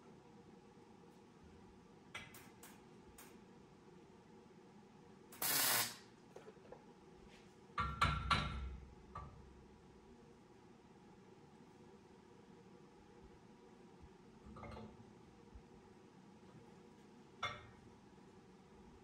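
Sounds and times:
short burst of hiss: 0:05.4 - 0:06.1.

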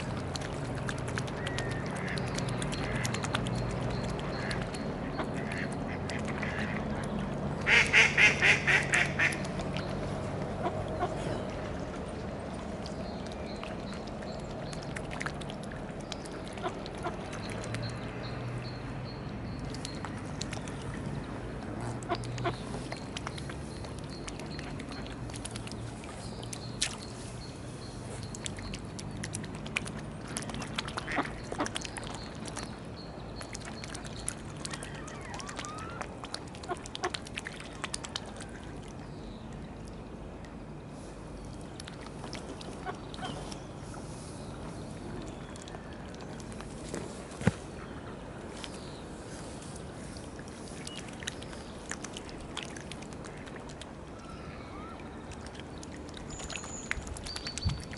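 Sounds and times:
water splashes and clicks: 0:00.0 - 0:57.9
ducks quacking: 0:07.6 - 0:09.4.

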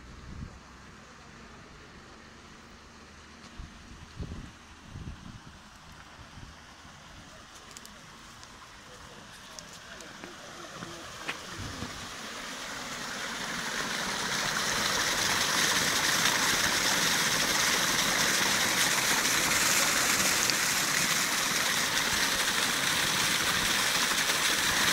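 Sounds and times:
slurry gushing and splashing: 0:09.2 - 0:24.9.

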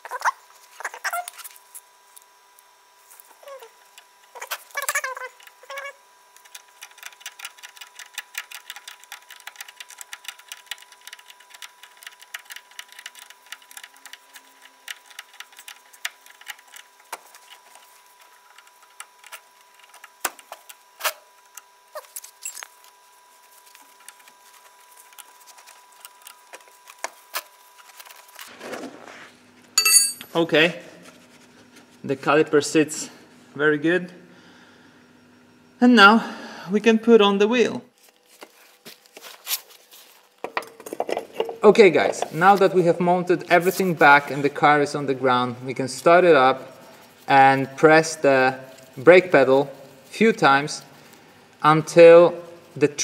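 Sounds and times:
metal tools knocking and clinking: 0:29.8 - 0:30.3.

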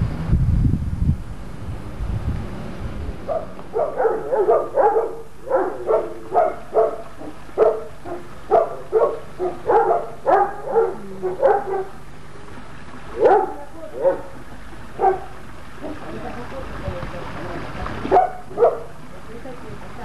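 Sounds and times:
dog barking: 0:03.3 - 0:12.0, 0:13.1 - 0:14.4, 0:15.0 - 0:16.1, 0:18.1 - 0:19.0.

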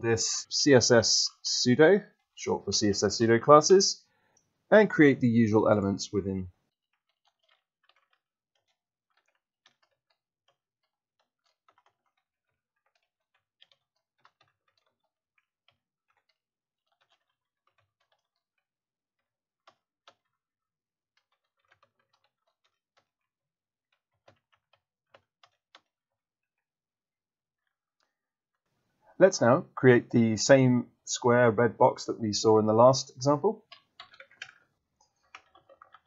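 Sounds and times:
computer keyboard keystrokes: 0:35.2 - 0:36.0.

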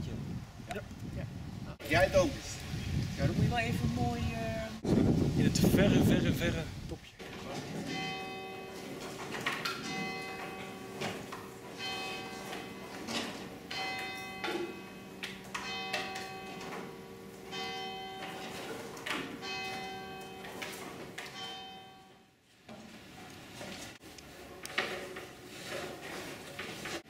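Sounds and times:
church bells ringing: 0:07.6 - 0:22.4.

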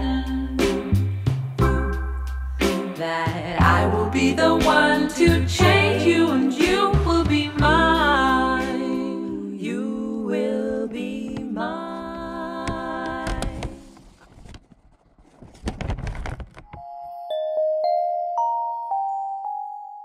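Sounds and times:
music with sung vocals: 0:00.0 - 0:14.0.

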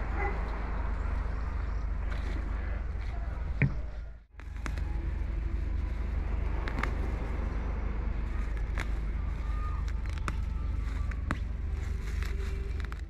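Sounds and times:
low outdoor rumble: 0:00.0 - 0:13.0
weeds being pulled by hand: 0:04.4 - 0:13.0.

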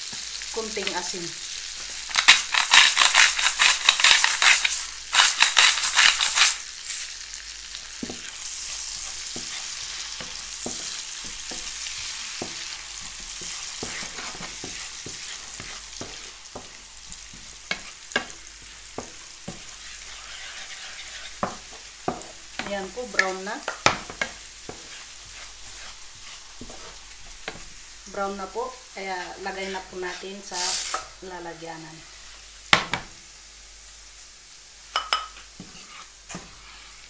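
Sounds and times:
garlic sizzling in pan: 0:00.0 - 0:37.0
salt grinder crunching: 0:02.0 - 0:06.6
wooden spatula scraping pan: 0:02.1 - 0:07.2, 0:07.8 - 0:28.5, 0:29.2 - 0:31.2, 0:35.6 - 0:37.0.

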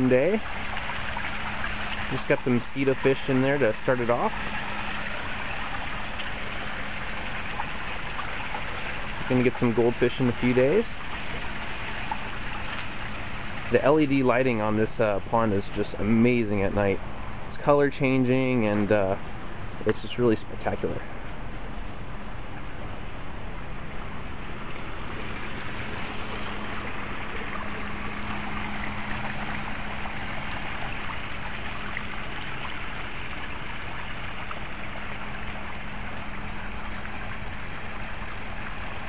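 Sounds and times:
small waterfall splashing into pool: 0:00.0 - 0:14.8, 0:24.5 - 0:39.0.

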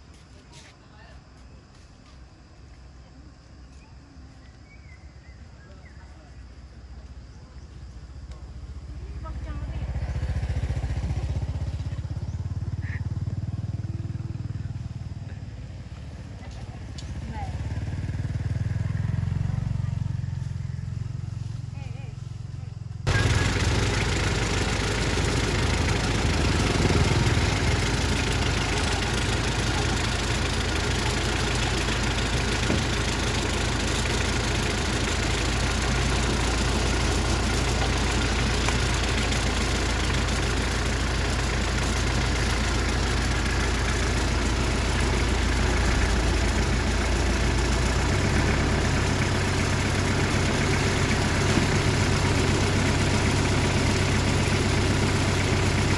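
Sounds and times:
car engine idling: 0:04.4 - 0:55.9.

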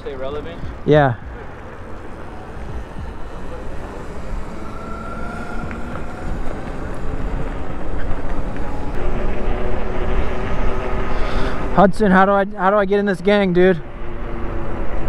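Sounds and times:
faint steady whines: 0:00.0 - 0:11.8
wind buffeting microphone: 0:00.0 - 0:11.8
road noise: 0:00.0 - 0:15.0.

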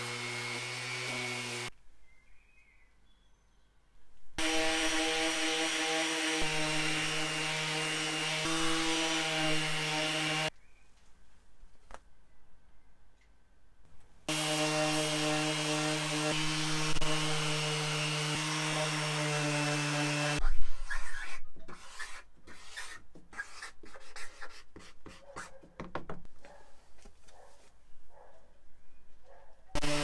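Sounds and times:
orbital sander humming: 0:00.0 - 0:01.7, 0:04.4 - 0:10.5, 0:14.3 - 0:20.4, 0:29.8 - 0:30.0
marker writing on card: 0:20.8 - 0:25.7.

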